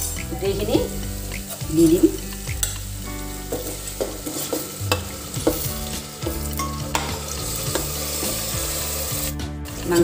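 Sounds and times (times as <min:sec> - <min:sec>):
food sizzling in hot oil: 0:00.0 - 0:10.0
spoon knocking and scraping pot: 0:02.2 - 0:08.6.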